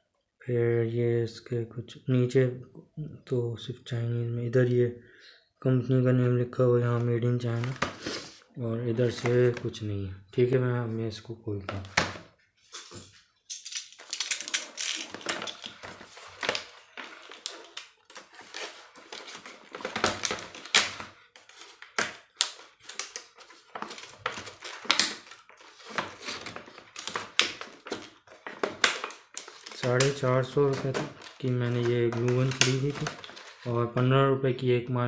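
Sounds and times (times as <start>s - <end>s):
plastic blister pack crackling: 13.6s - 33.8s.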